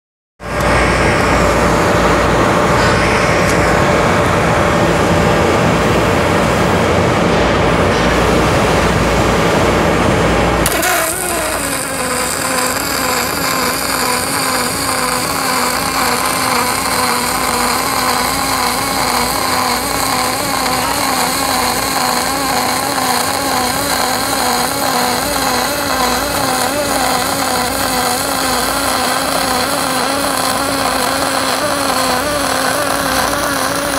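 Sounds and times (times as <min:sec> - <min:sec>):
welding arc hissing: 0:10.6 - 0:33.9.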